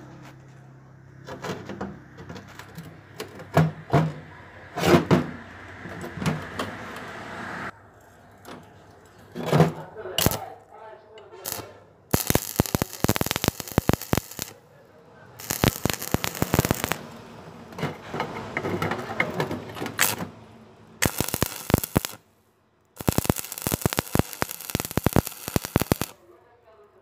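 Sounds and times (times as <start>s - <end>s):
welding arc crackling: 10.2s - 10.5s, 11.4s - 14.6s, 15.4s - 17.2s, 19.9s - 20.2s, 21.0s - 22.3s, 22.9s - 26.2s.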